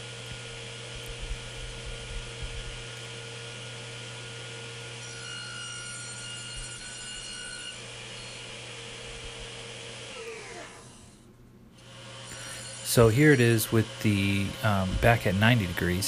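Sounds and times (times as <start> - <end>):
table saw running: 0.0 - 16.0
saw cutting wood: 4.6 - 11.2, 11.8 - 16.0
saw winding down: 4.9 - 11.2, 11.8 - 16.0.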